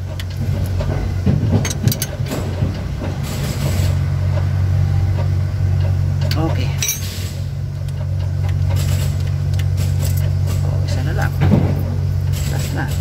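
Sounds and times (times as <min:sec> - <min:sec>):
low engine hum: 0:00.0 - 0:13.0
wrench clinking on metal: 0:01.6 - 0:02.1, 0:06.3 - 0:07.2.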